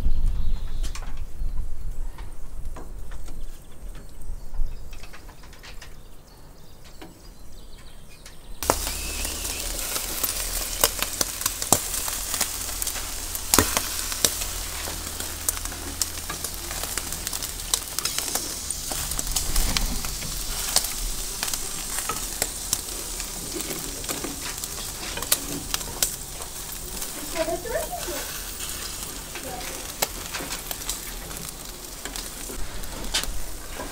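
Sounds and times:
sharp crackles and clicks: 0:08.2 - 0:33.9
meat sizzling over charcoal: 0:08.6 - 0:33.9.

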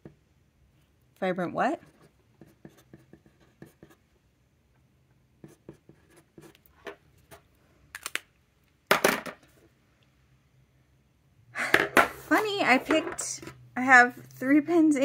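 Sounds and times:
fountain pen scratching on paper: 0:01.8 - 0:04.0, 0:05.4 - 0:06.6.

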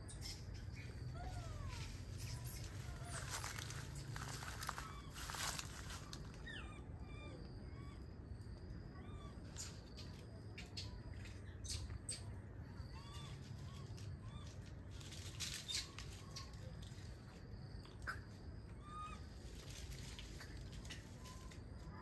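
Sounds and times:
low outdoor rumble: 0:00.0 - 0:22.0
dry leaves and twigs rustling: 0:00.1 - 0:06.7, 0:13.0 - 0:22.0.

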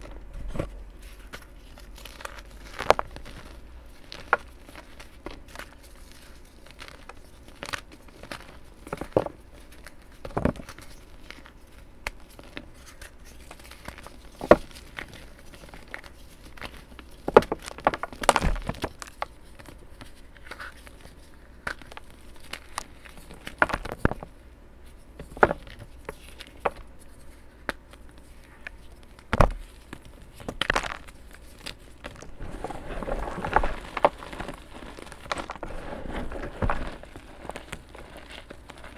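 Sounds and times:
chalk cracking and crunching: 0:00.6 - 0:24.2, 0:25.6 - 0:38.9
crumbling rustle: 0:28.4 - 0:38.9.

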